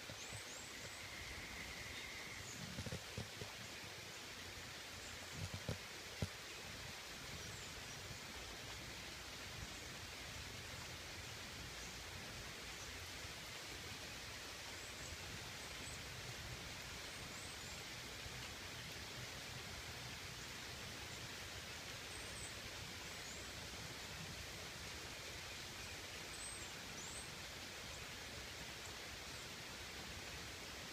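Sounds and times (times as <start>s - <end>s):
steady rain falling: 0.0s - 30.9s.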